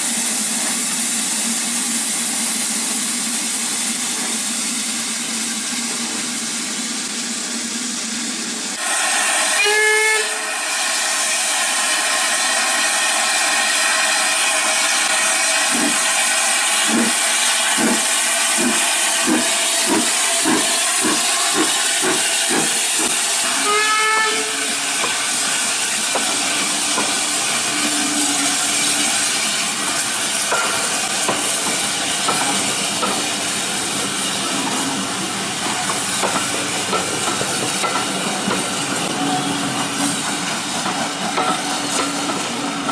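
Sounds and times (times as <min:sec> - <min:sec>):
hiss of steam: 0:00.0 - 0:42.9
steam locomotive whistle: 0:08.8 - 0:18.0, 0:18.6 - 0:25.4, 0:26.2 - 0:29.7
locomotive exhaust chuffs: 0:15.3 - 0:23.5.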